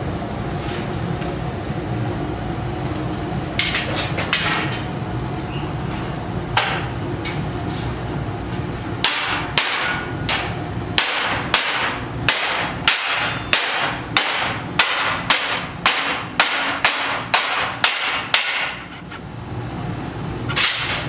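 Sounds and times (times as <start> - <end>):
hammer striking sheet steel: 9.0 - 19.0.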